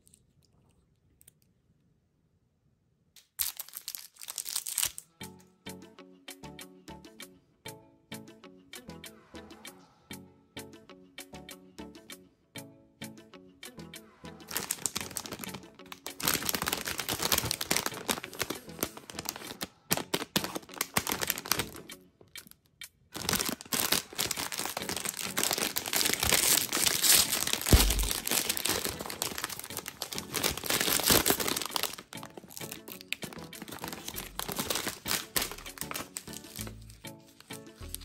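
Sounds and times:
bag being torn open: 0:03.2 - 0:05.1, 0:14.5 - 0:21.8, 0:23.2 - 0:38.0
plastic packaging crinkling: 0:03.2 - 0:05.1, 0:14.5 - 0:38.0.

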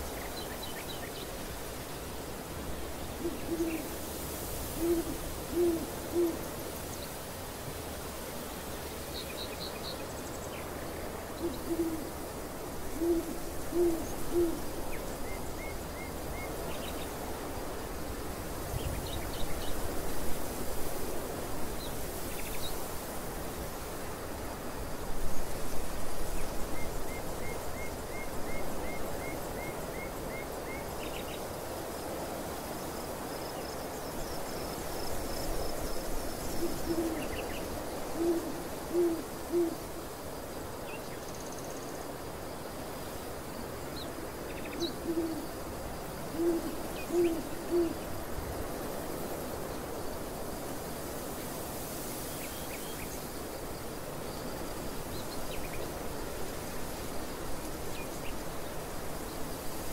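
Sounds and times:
bird cooing hoots: 0:03.2 - 0:04.0, 0:04.8 - 0:06.5, 0:11.4 - 0:12.3, 0:12.9 - 0:14.7, 0:36.6 - 0:37.5, 0:38.1 - 0:40.0, 0:44.7 - 0:45.5, 0:46.3 - 0:48.0.

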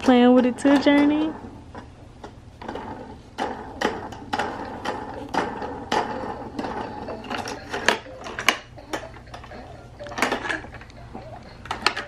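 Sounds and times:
plastic toy clicking and rattling: 0:03.8 - 0:10.9, 0:11.6 - 0:12.0.

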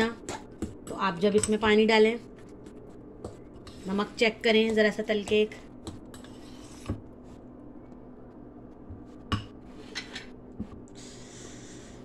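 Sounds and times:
faint hum: 0:00.0 - 0:12.0
spoon stirring batter in bowl: 0:02.4 - 0:07.1.

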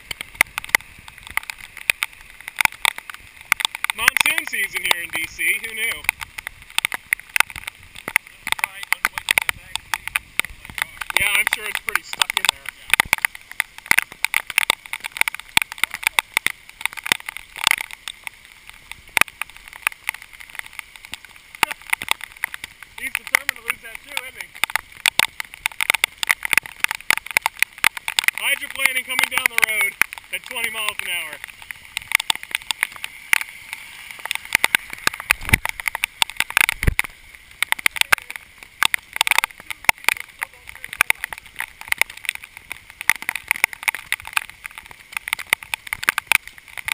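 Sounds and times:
hiss of downpour: 0:00.0 - 0:46.9
rain ticking on camera: 0:00.0 - 0:46.9.

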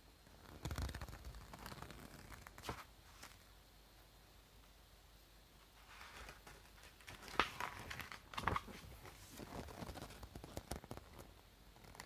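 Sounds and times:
paper rustling and crinkling: 0:00.6 - 0:03.4, 0:05.8 - 0:12.0
sharp paper crackles: 0:00.6 - 0:03.4.

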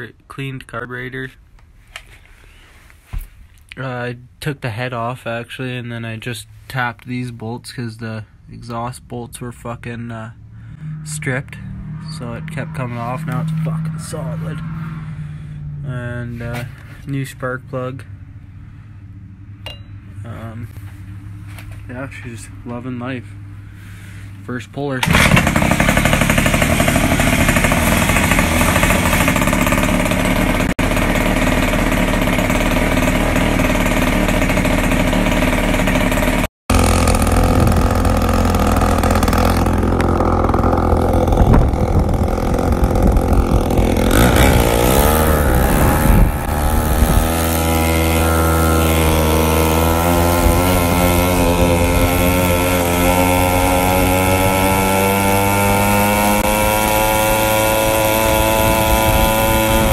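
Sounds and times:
two-stroke engine running fast: 0:10.6 - 0:15.8, 0:25.0 - 0:59.9.

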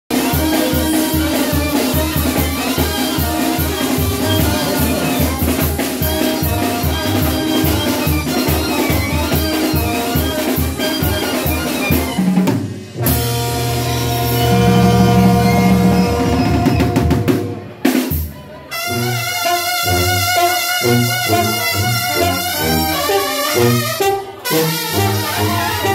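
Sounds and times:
driving drum beat: 0:00.1 - 0:18.4
brass band playing dance music: 0:00.1 - 0:25.9.

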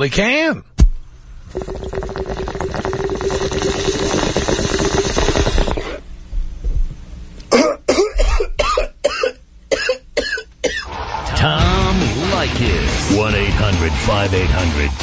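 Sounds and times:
water bubbling through a bong: 0:01.4 - 0:06.1
person coughing: 0:07.5 - 0:10.9.

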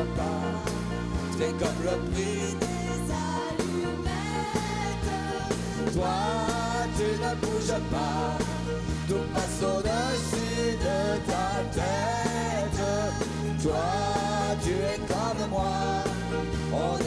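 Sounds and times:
man singing: 0:00.0 - 0:04.1, 0:05.9 - 0:17.0
pop band playing: 0:00.0 - 0:17.0.

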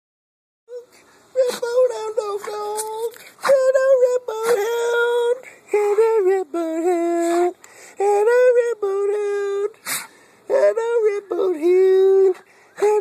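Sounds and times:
dog whining: 0:06.9 - 0:07.6.

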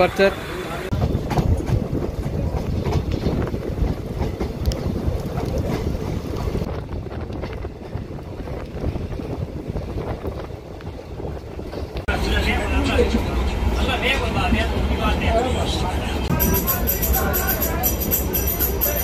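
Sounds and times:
train rumbling: 0:00.0 - 0:19.0
wind buffeting microphone: 0:00.9 - 0:12.1.

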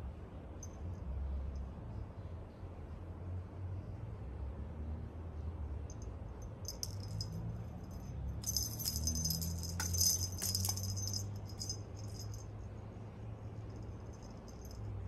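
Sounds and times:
small bell jingling: 0:06.6 - 0:12.6, 0:13.7 - 0:15.0.

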